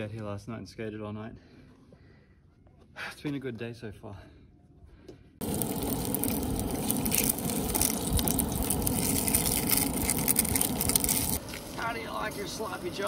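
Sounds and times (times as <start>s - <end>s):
low rumble: 5.4s - 11.8s
hot dogs sizzling in oil: 5.4s - 13.0s.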